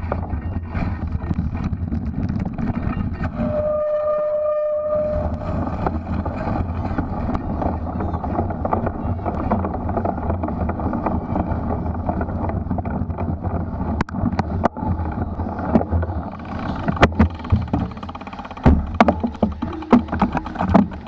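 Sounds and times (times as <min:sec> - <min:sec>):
tyre and drivetrain rattle: 0:00.0 - 0:04.0, 0:04.8 - 0:21.0
wind rushing over microphone: 0:00.0 - 0:21.0
bike jolting knocks: 0:05.5 - 0:21.0.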